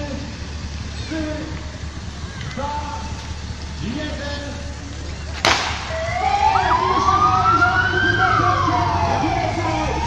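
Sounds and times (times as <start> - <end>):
sharp crack: 5.4 - 6.0
wailing siren: 5.8 - 10.0
fainter higher siren: 5.9 - 10.0.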